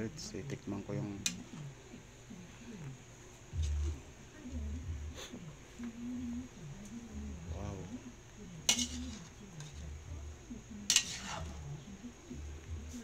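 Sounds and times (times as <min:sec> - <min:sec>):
metal spatula stirring noodles in wok: 0:08.6 - 0:09.8, 0:10.8 - 0:11.7
spatula clanking against pan: 0:08.6 - 0:09.8, 0:10.9 - 0:11.6.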